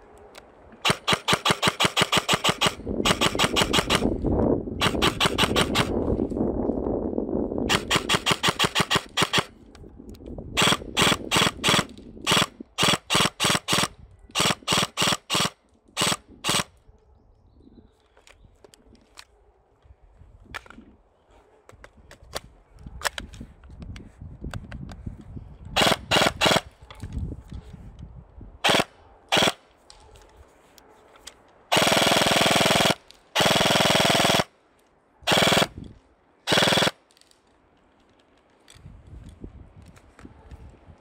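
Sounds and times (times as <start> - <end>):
airsoft gun firing bursts: 0.8 - 4.2, 4.8 - 6.0, 7.6 - 9.5, 10.6 - 16.7, 25.8 - 26.7, 28.6 - 29.6, 31.7 - 34.5, 35.3 - 35.8, 36.4 - 37.0
faint clicks and handling rumble: 37.1 - 41.0.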